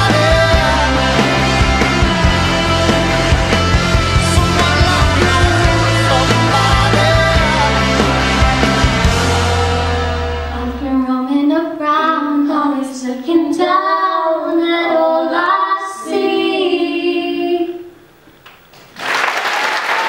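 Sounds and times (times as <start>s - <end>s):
girls singing together: 0.0s - 3.3s, 12.7s - 18.0s
audience applause: 18.9s - 20.0s.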